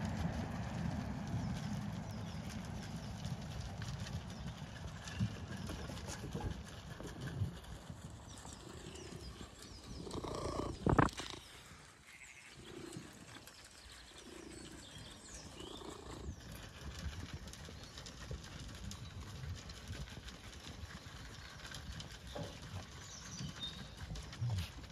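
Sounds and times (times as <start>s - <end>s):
sheep and dog eating feed: 0.0s - 24.9s
birds singing: 8.0s - 16.7s, 20.9s - 24.7s.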